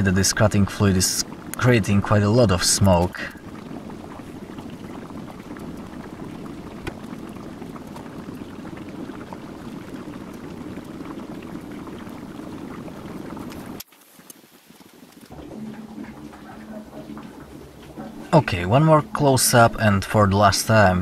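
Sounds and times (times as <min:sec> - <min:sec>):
gas torch burning: 0:00.0 - 0:14.4.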